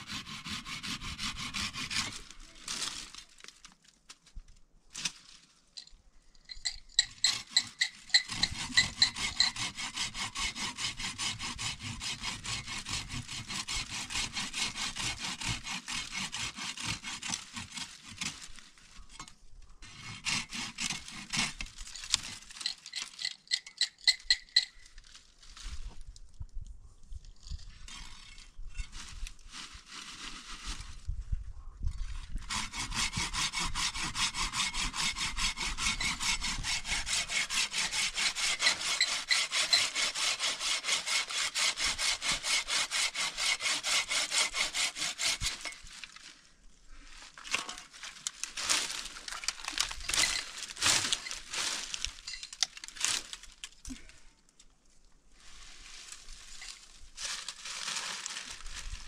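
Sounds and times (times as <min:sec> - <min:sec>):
saw cutting wood: 0:00.0 - 0:02.3, 0:07.0 - 0:18.5, 0:19.8 - 0:23.9, 0:32.4 - 0:45.8.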